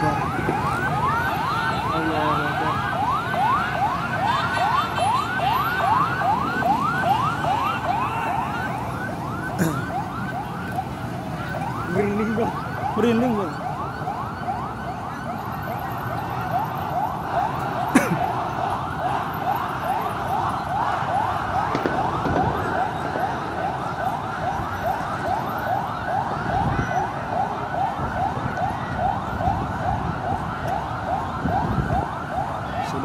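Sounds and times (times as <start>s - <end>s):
crowd din: 0.0s - 10.4s, 17.1s - 25.4s
siren yelping: 0.0s - 33.0s.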